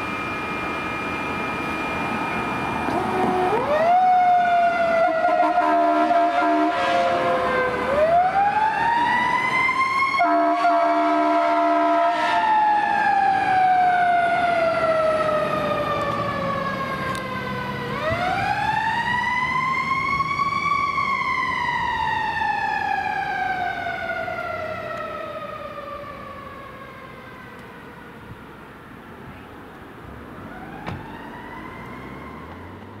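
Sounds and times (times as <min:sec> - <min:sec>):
fire truck siren wailing: 0:00.0 - 0:29.0, 0:30.1 - 0:33.0
horn blast: 0:05.0 - 0:07.5, 0:10.2 - 0:12.6.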